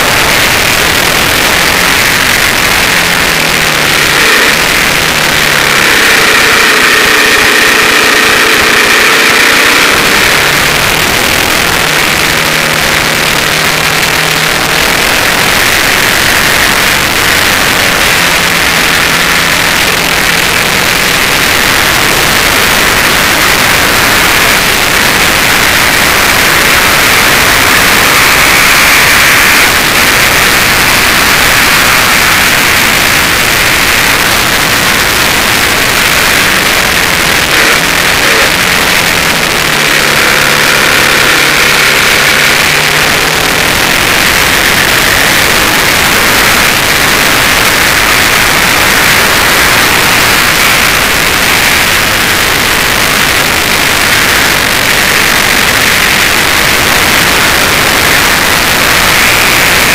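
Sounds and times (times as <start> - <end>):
faint motorcycle engine: 0.0 - 59.9.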